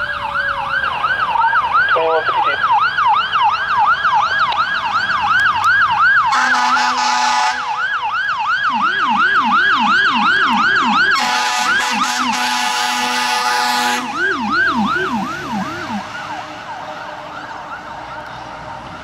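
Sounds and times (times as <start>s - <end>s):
fire engine siren yelping: 0.0s - 19.0s
lower yelping siren: 0.0s - 19.0s
long horn blasts: 6.3s - 7.8s, 11.2s - 14.2s.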